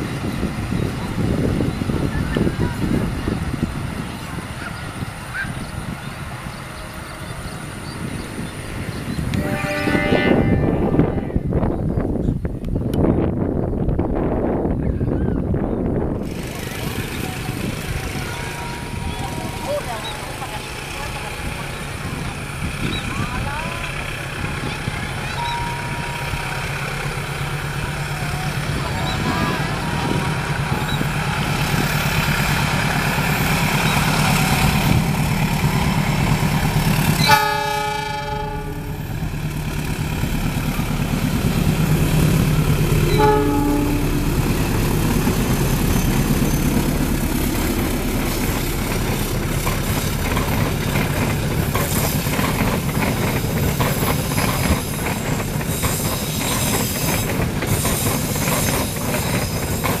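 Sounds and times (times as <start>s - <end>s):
locomotive engine rumble: 0.0s - 60.0s
train horn blasts: 9.3s - 11.7s, 37.2s - 39.1s, 43.0s - 44.5s
coaches clattering over rail joints: 16.2s - 37.8s, 38.4s - 60.0s.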